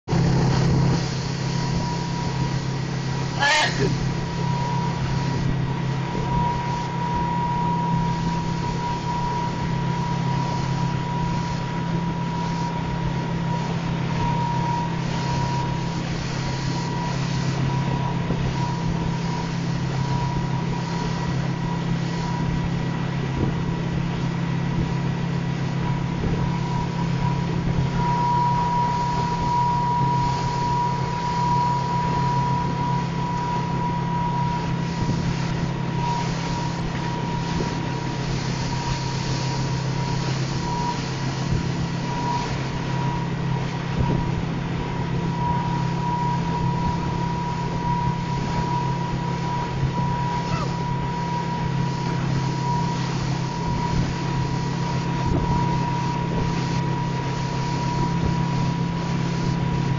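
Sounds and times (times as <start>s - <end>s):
motorboat engine droning: 0.0s - 59.9s
rush of boat wake: 0.0s - 59.9s
wind buffeting microphone: 0.1s - 3.2s, 39.8s - 57.3s.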